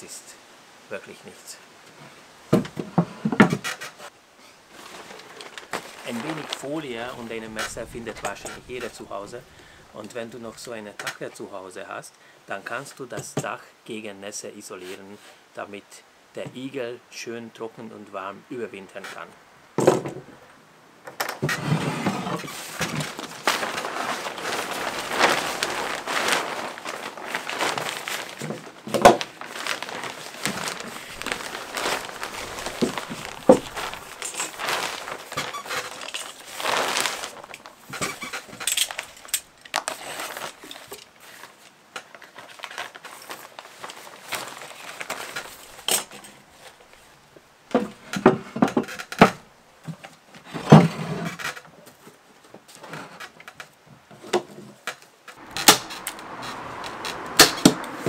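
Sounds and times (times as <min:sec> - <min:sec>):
plastic sheeting rustling: 0:04.7 - 0:10.8, 0:21.8 - 0:48.4, 0:55.4 - 0:58.0.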